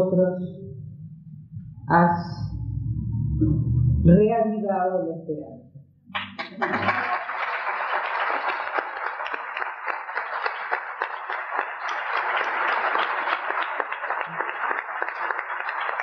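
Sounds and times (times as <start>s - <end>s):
audience applauding: 6.2s - 16.0s.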